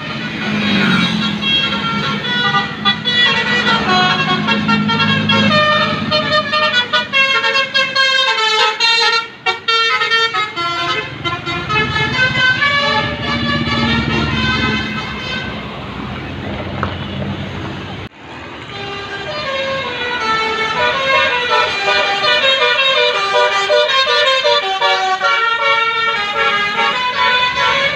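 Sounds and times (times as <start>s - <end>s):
bus engine rumbling: 0.0s - 27.9s
musical air horn tune: 18.7s - 27.9s.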